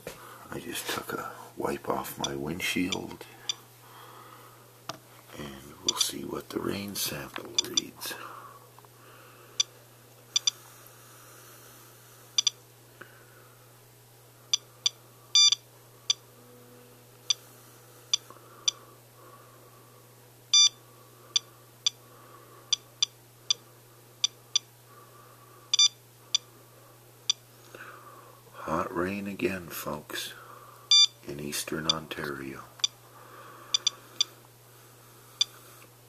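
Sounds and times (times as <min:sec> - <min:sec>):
faint low hum: 0:00.0 - 0:36.0
dosimeter beeping: 0:10.3 - 0:10.6, 0:14.5 - 0:16.2, 0:20.5 - 0:22.0, 0:24.2 - 0:24.7, 0:25.7 - 0:26.4, 0:30.9 - 0:31.2, 0:33.7 - 0:34.4.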